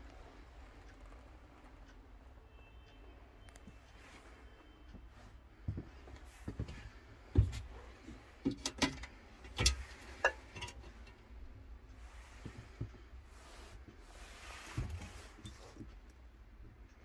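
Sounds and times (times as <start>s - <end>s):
sharp clicks and knocks: 7.4s - 11.3s
faint rustling: 9.1s - 16.2s.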